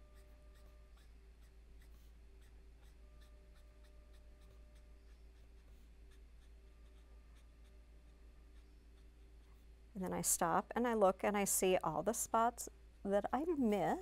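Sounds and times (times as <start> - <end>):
low steady hum: 0.0 - 14.0
marker scratching on cardstock: 0.2 - 9.6.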